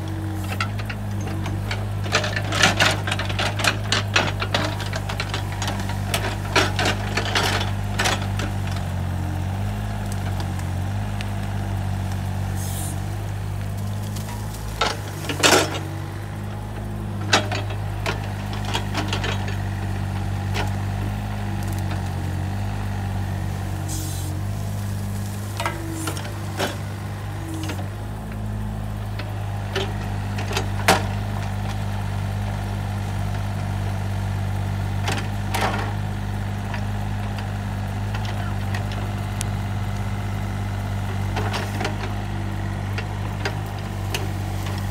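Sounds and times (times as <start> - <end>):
excavator diesel engine running: 0.0 - 44.9
metal clanks and knocks: 14.2 - 16.2, 17.1 - 19.7, 23.9 - 27.9.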